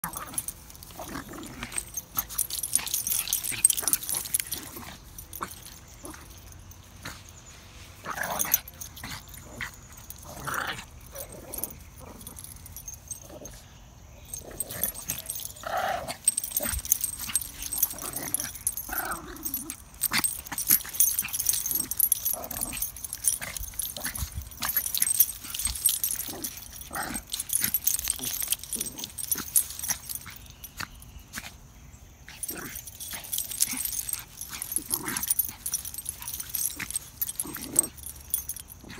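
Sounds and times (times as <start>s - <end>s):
small dogs vocalizing: 0.0s - 7.3s, 14.3s - 31.6s, 32.3s - 38.9s
scuffling and rustling: 14.6s - 31.0s, 32.4s - 38.9s.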